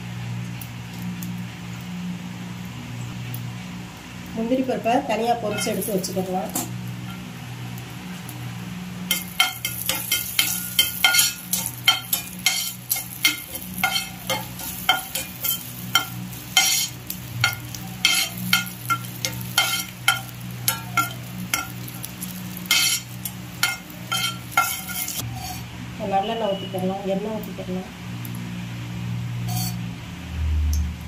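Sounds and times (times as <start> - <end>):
nuts frying in oil: 0.0 - 31.0
metal spatula scraping a pan: 5.4 - 7.3, 9.1 - 25.7, 29.4 - 29.8.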